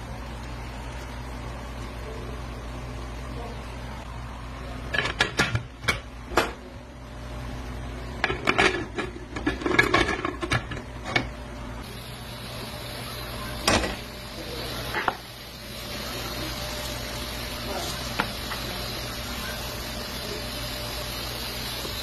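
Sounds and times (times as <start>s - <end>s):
pots and utensils clattering: 4.9s - 6.6s, 8.2s - 11.3s.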